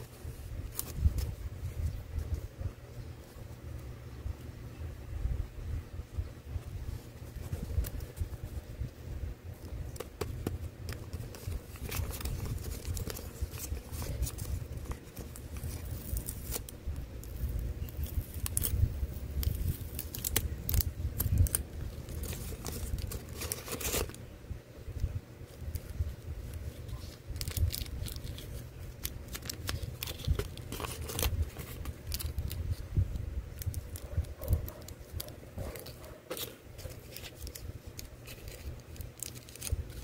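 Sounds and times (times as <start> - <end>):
plastic wrapping crinkling: 9.9 - 24.2, 25.5 - 40.0.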